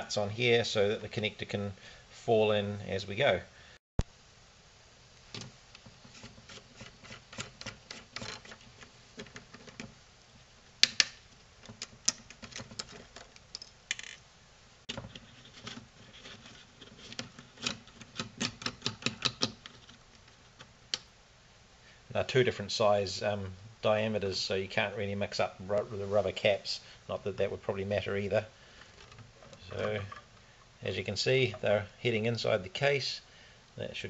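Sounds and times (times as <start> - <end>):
fingers clicking and scraping plastic: 5.4 - 9.9, 10.8 - 14.2, 14.9 - 21.1.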